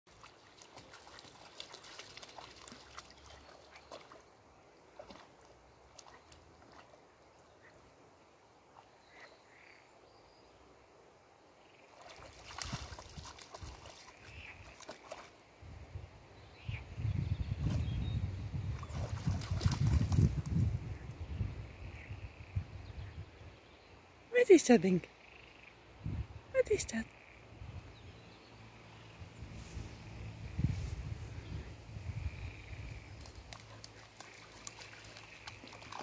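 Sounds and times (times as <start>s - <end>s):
dog splashing in water: 0.1s - 4.3s, 11.9s - 15.4s, 18.8s - 20.5s, 33.2s - 36.0s
dog sloshing through water: 0.1s - 7.9s, 11.9s - 15.4s, 18.7s - 20.5s, 33.2s - 36.0s.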